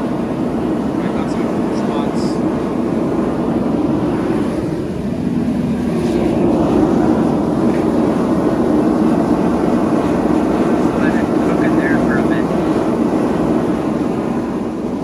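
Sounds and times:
forge burners roaring: 0:00.0 - 0:15.0.

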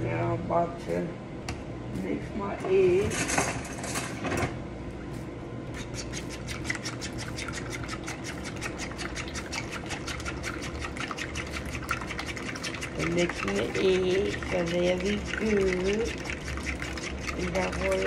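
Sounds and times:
eggs whisked in bowl: 0:05.7 - 0:18.0.

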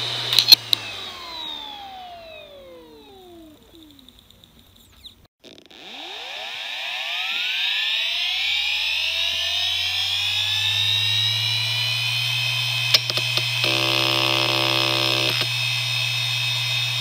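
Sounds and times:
hard drive motor whine: 0:00.0 - 0:17.0
buzzing hard drive head seeks: 0:12.8 - 0:15.6.

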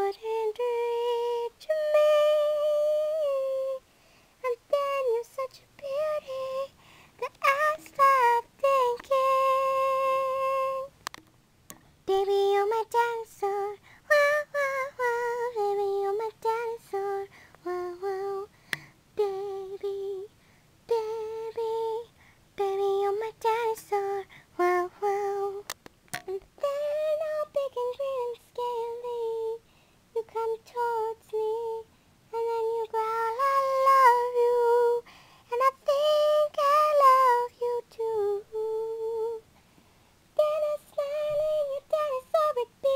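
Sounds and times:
woman singing unaccompanied: 0:00.0 - 0:11.0, 0:12.0 - 0:39.5, 0:40.3 - 0:42.9.

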